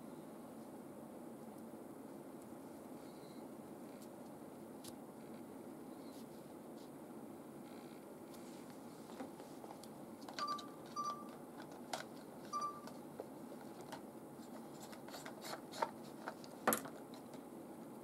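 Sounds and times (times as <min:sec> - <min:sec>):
short electronic beeps: 0:10.4 - 0:11.3, 0:12.5 - 0:12.9.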